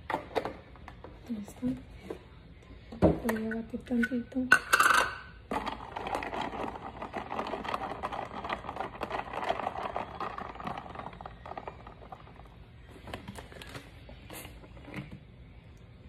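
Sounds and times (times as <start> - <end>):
ice cubes clattering in tumbler: 5.5 - 12.5.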